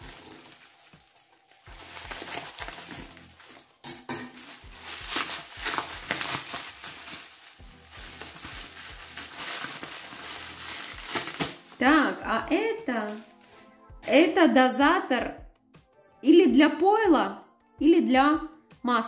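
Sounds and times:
plastic packaging crinkling: 0:00.0 - 0:12.2, 0:12.9 - 0:14.2.

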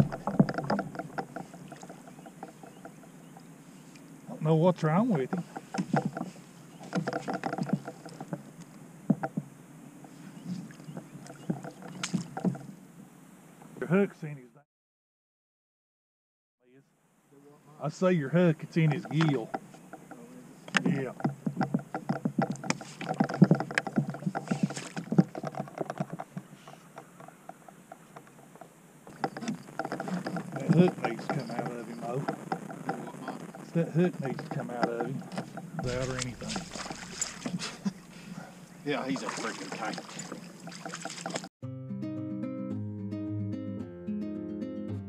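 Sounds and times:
fishing gear clattering on kayak: 0:00.0 - 0:03.5, 0:05.0 - 0:09.5, 0:10.4 - 0:12.7, 0:18.8 - 0:33.4, 0:34.2 - 0:41.5.

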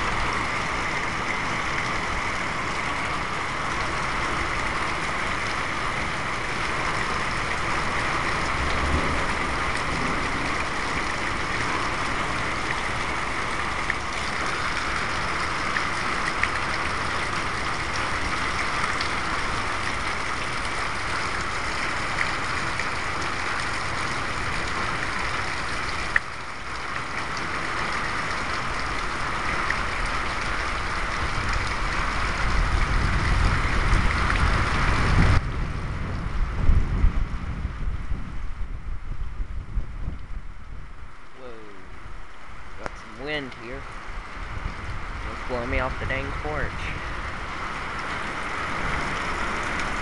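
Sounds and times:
heavy rain hissing: 0:00.0 - 0:50.0
wind buffeting microphone: 0:30.0 - 0:41.2, 0:43.8 - 0:50.0.

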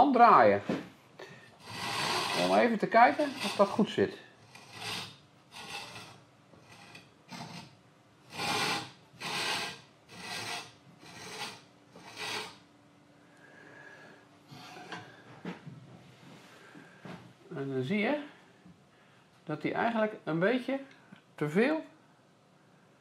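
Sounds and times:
chisel scraping on sharpening stone: 0:01.6 - 0:03.8, 0:04.4 - 0:12.6.

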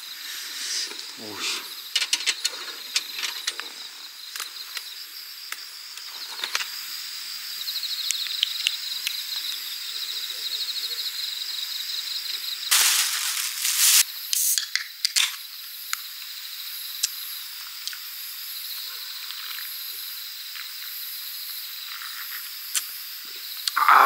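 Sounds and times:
insects chirping: 0:00.0 - 0:24.0
loud rustle: 0:12.7 - 0:14.0.

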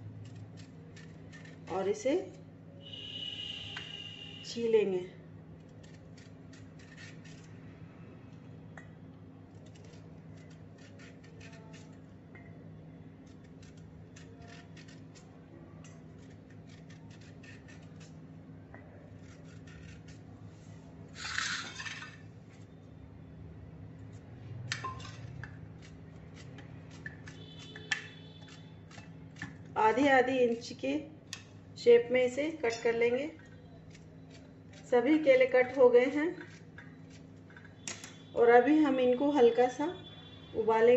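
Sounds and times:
knife scraping banana skin: 0:00.0 - 0:01.9, 0:05.6 - 0:07.6, 0:09.5 - 0:12.0, 0:13.2 - 0:18.2, 0:19.1 - 0:20.3, 0:25.1 - 0:29.7, 0:33.6 - 0:38.3.

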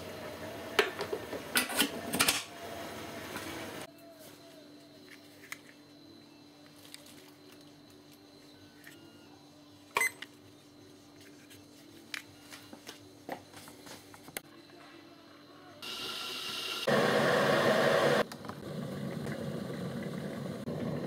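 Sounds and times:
electric kettle heating water: 0:15.8 - 0:21.0.

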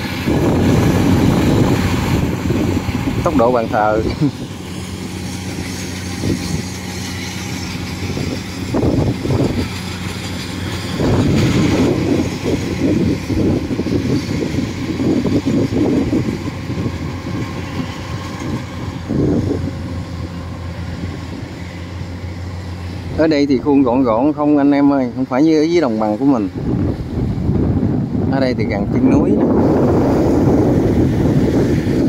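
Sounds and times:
combine harvester engine hum: 0:00.0 - 0:32.0
rough machine noise: 0:00.0 - 0:32.0.

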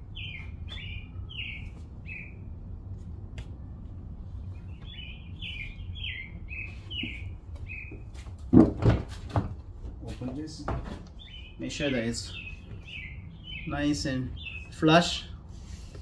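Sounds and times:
small bird chirping: 0:00.1 - 0:02.5, 0:04.6 - 0:08.0, 0:11.2 - 0:14.8.

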